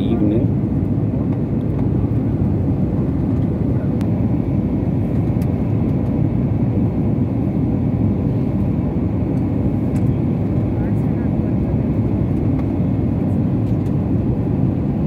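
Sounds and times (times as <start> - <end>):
jet engine and airflow rumble: 0.0 - 15.0.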